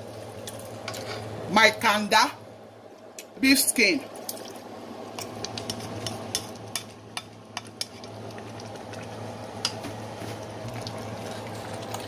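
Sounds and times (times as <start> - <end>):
steady low hum: 0.0 - 12.0
soup simmering: 4.2 - 12.0.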